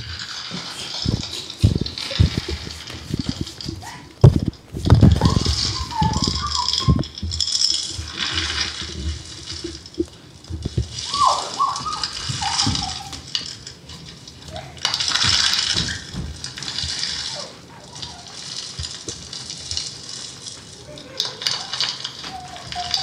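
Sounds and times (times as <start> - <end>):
low thuds: 0.0 - 11.0
hissing rattling noise bursts: 0.0 - 23.0.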